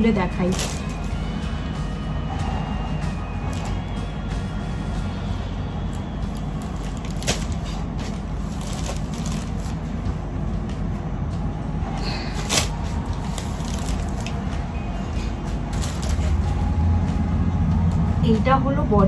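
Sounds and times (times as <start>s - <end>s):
low hum: 0.0s - 19.0s
fabric rustling and crinkling: 0.4s - 1.1s, 5.9s - 9.9s, 12.3s - 14.4s, 15.7s - 16.5s.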